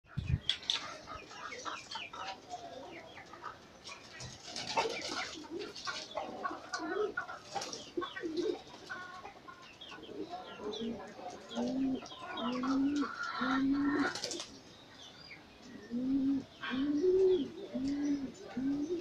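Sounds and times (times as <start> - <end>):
pigeons cooing: 0.7 - 14.7, 15.6 - 19.0
wings fluttering: 3.8 - 6.2, 14.0 - 14.6.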